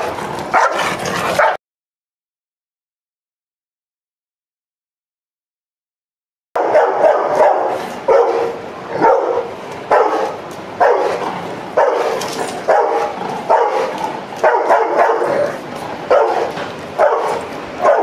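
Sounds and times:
dog barking: 0:00.0 - 0:01.6, 0:06.6 - 0:18.0.

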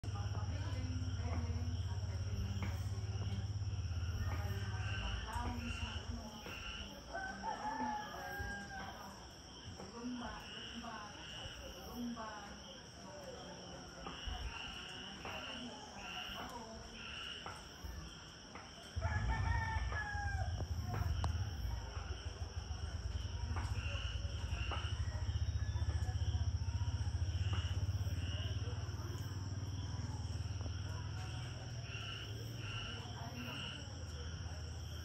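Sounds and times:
rooster crowing: 0:07.1 - 0:09.2, 0:19.0 - 0:21.6
loud low rumble: 0:19.0 - 0:31.8.

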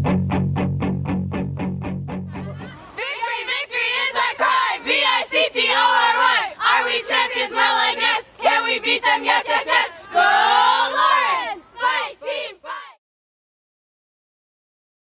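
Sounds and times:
guitar music: 0:00.0 - 0:02.8
group shouting a team cheer: 0:02.4 - 0:13.0.

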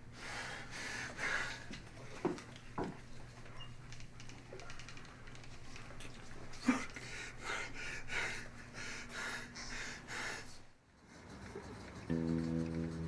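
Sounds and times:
man breathing heavily: 0:00.2 - 0:01.8, 0:06.6 - 0:10.7.

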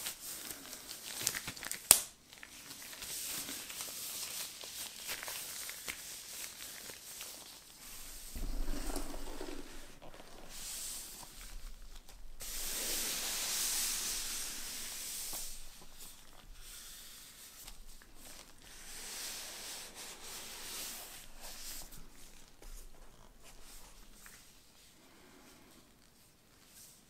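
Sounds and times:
gloved hands rubbing cardboard box: 0:07.8 - 0:21.8.

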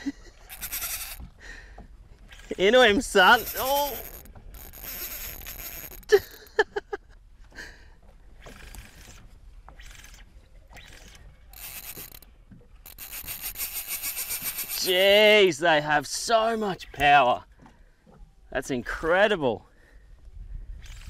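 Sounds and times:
fishing reel drag giving line: 0:00.4 - 0:01.2, 0:02.2 - 0:06.4, 0:08.4 - 0:15.0.

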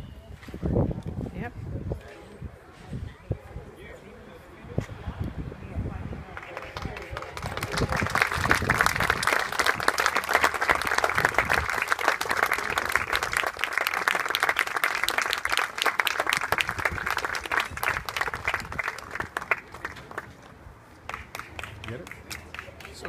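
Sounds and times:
small crowd applauding: 0:06.3 - 0:23.0.

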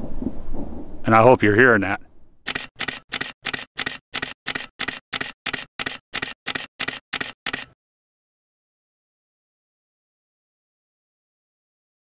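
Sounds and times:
camera shutter clicking: 0:02.5 - 0:07.8.

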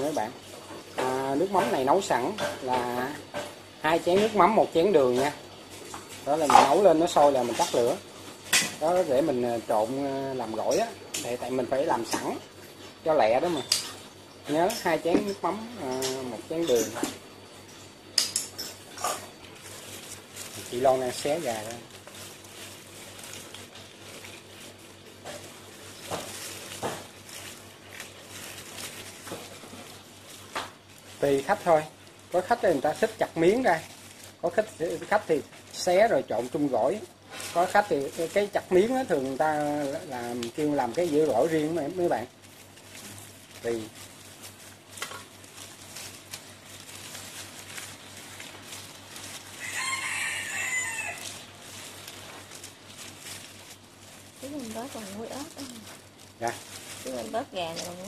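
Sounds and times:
background hiss: 0:00.0 - 0:58.0
hands tearing chicken in pot: 0:19.4 - 0:54.5
gloved hands pulling apart chicken: 0:37.4 - 0:54.4
rooster crowing: 0:49.5 - 0:51.5.

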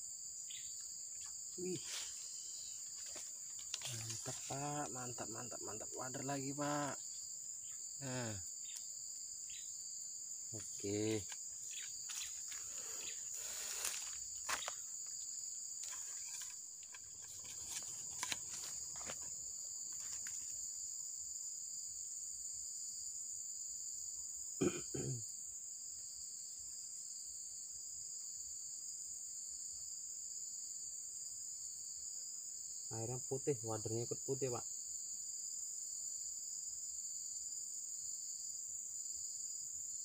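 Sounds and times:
high-pitched insect chorus: 0:00.0 - 0:40.0
handling clicks and rustles: 0:15.8 - 0:19.3.

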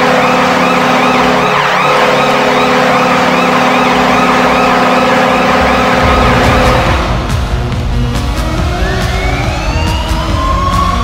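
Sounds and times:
arena goal horn: 0:00.0 - 0:07.0
wailing siren rising and falling: 0:00.0 - 0:07.3, 0:08.0 - 0:11.0.

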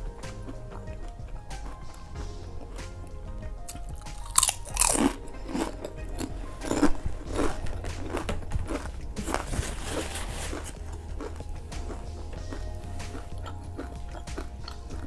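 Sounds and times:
chips crunching: 0:03.7 - 0:15.0.

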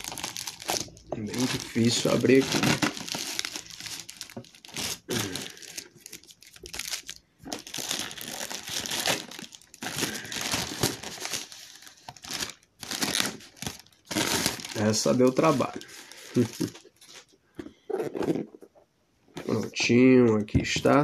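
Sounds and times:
plastic mailer bag crinkling: 0:00.0 - 0:17.2.

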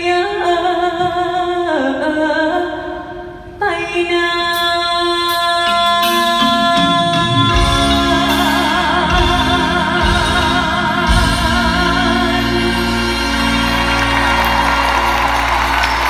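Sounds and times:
woman singing with vibrato: 0:00.0 - 0:13.6
band and orchestra playing: 0:05.6 - 0:16.0.

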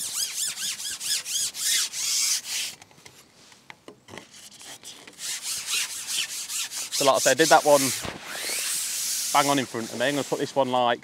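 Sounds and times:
fishing pole sections sliding: 0:00.0 - 0:10.7.

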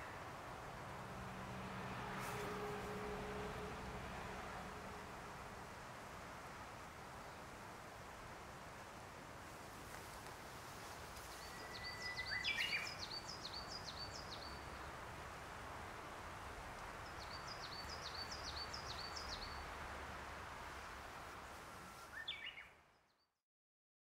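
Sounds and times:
outdoor background hiss: 0:00.0 - 0:23.2
songbird singing: 0:11.2 - 0:15.0, 0:16.8 - 0:19.8, 0:20.8 - 0:23.3.

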